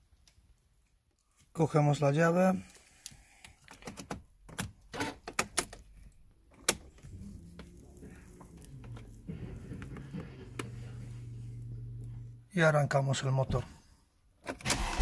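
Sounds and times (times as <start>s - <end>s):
low steady hum: 6.2s - 13.0s.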